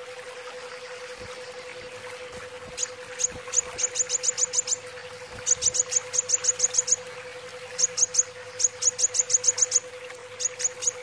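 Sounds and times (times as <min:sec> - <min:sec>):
steady low hum: 0:00.0 - 0:11.0
sunbird chirping: 0:02.8 - 0:04.8, 0:05.4 - 0:07.0, 0:07.8 - 0:11.0.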